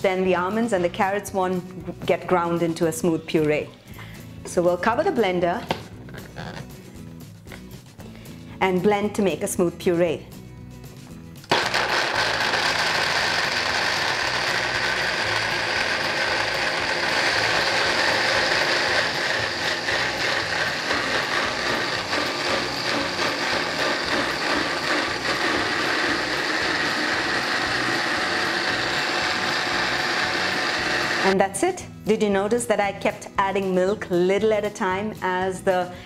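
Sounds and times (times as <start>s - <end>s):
blender motor grinding: 11.4s - 31.4s.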